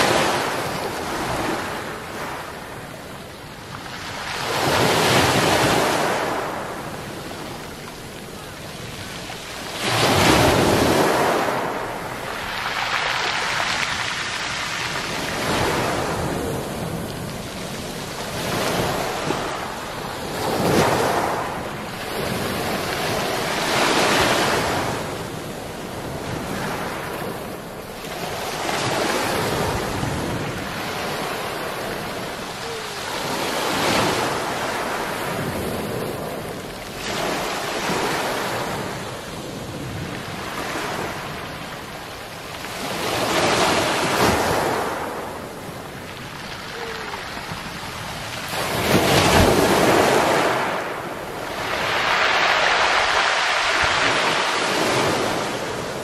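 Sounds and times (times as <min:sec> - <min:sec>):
waves rolling pebbles: 0:00.0 - 0:56.0.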